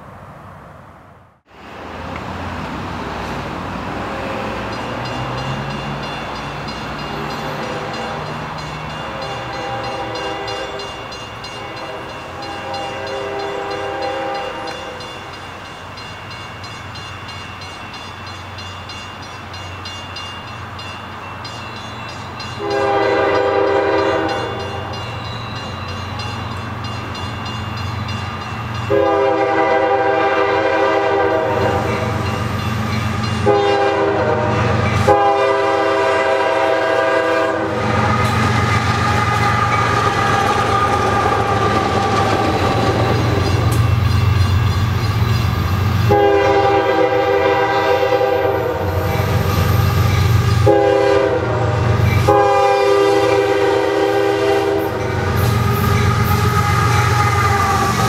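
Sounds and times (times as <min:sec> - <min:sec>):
locomotive air horn blasts: 0:07.6 - 0:08.3, 0:09.1 - 0:11.0, 0:11.6 - 0:15.1, 0:22.6 - 0:24.8, 0:28.9 - 0:32.2, 0:33.4 - 0:38.4, 0:46.1 - 0:49.0, 0:50.6 - 0:58.0.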